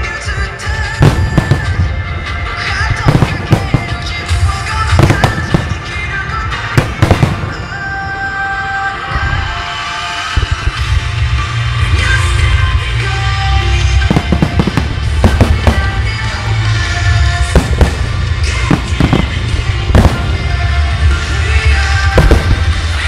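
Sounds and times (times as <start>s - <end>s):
loud music over loudspeakers: 0.0s - 23.0s
fireworks bangs: 0.8s - 8.6s, 13.8s - 23.0s
low rumble: 13.8s - 23.0s.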